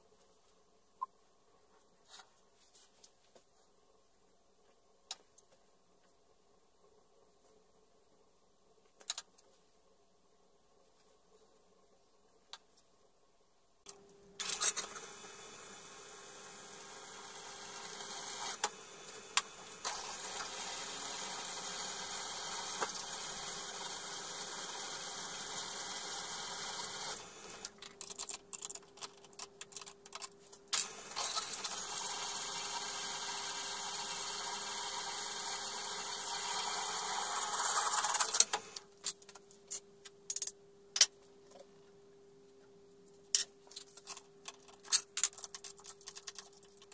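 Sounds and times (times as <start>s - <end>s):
drill press motor humming: 14.4s - 27.7s, 30.8s - 38.8s
drill boring into steel: 14.5s - 27.6s, 30.8s - 38.8s.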